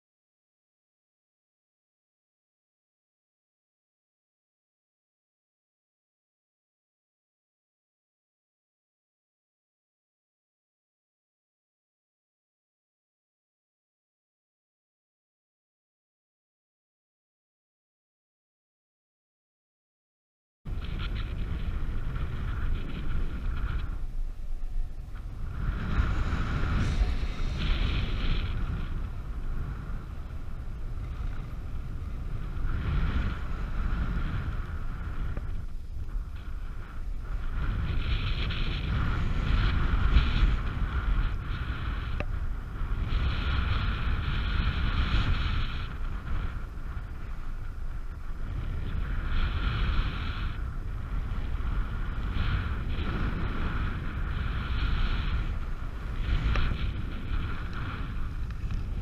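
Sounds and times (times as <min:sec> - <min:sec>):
wind buffeting microphone: 0:20.7 - 0:59.0
high steady tone: 0:24.5 - 0:30.0.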